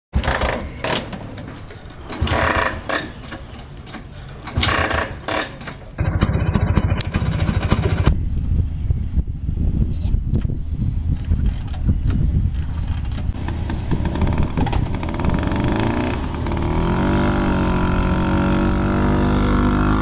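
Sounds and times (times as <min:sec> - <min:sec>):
scooter engine puttering: 0:00.2 - 0:08.2, 0:12.5 - 0:20.0.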